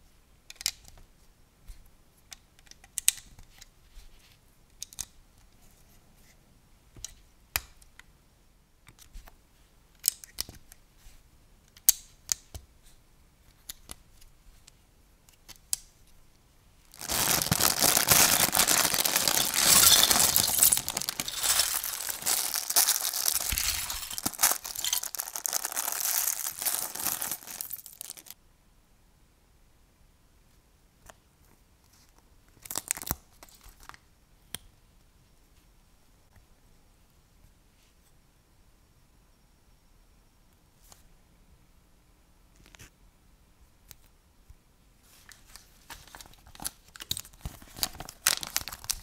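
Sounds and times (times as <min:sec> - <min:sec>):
loose plastic pieces clattering: 0:16.9 - 0:28.4
plastic bag crinkling: 0:16.9 - 0:28.4, 0:46.4 - 0:49.0.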